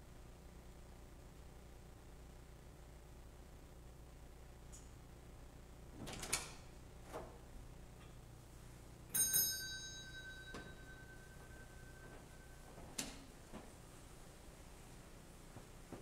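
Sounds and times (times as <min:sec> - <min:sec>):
small bell ringing: 0:09.1 - 0:12.7.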